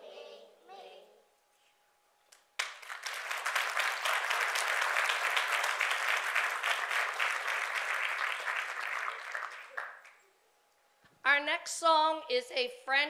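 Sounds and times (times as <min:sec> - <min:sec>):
audience applauding: 0:02.6 - 0:10.2.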